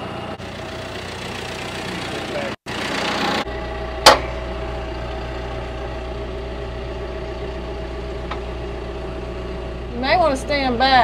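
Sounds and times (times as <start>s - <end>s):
tractor engine idling: 0.0s - 11.0s
sharp clank: 4.0s - 4.5s.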